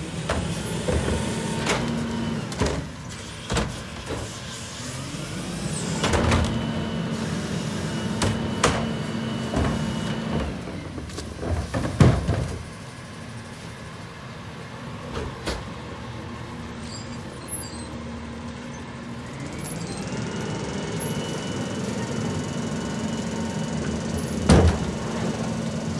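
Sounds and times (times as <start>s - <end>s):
truck engine whine: 0.0s - 3.4s, 4.0s - 11.6s, 12.7s - 25.9s
loud clunks and bangs of cart: 0.2s - 4.3s, 8.1s - 10.6s, 11.4s - 12.7s, 24.3s - 25.0s.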